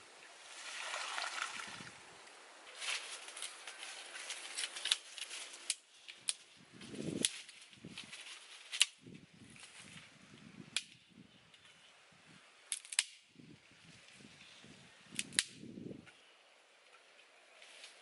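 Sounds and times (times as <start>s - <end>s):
stick rustling and scraping: 2.7s - 10.1s
wooden stick snapping: 8.7s - 9.0s, 10.7s - 11.0s, 12.7s - 13.3s, 15.2s - 15.6s.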